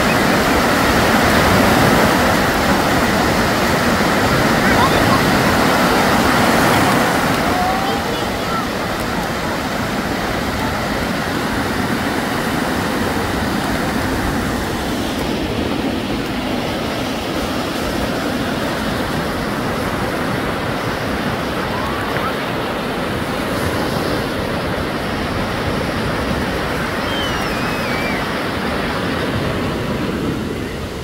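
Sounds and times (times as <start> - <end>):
waves breaking on beach: 0.0 - 31.0.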